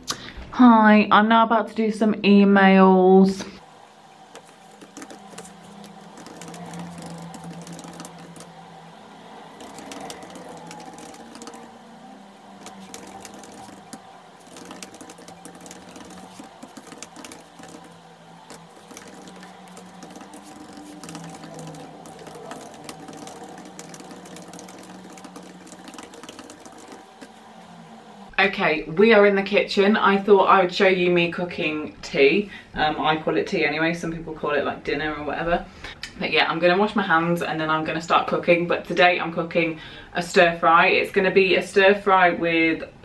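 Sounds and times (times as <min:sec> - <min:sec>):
soft background music: 0:03.6 - 0:28.4
rapid typing on laptop keyboard: 0:04.2 - 0:28.0.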